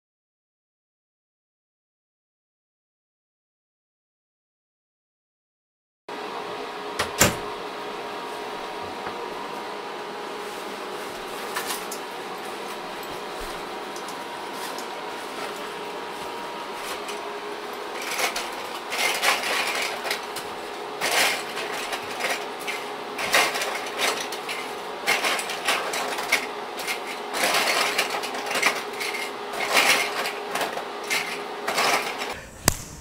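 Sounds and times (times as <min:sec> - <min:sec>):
room hum: 0:06.1 - 0:33.0.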